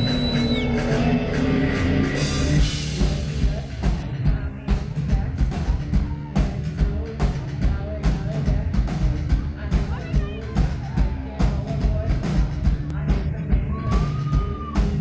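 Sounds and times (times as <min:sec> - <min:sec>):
synth tones: 0:00.0 - 0:02.6
drum beat: 0:00.0 - 0:15.0
guitar: 0:00.0 - 0:15.0
woman singing: 0:02.8 - 0:15.0.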